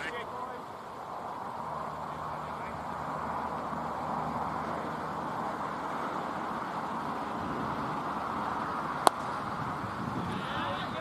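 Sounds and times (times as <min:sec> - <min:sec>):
outdoor background hiss: 0:00.0 - 0:11.0
cricket bat striking ball: 0:09.0 - 0:09.4.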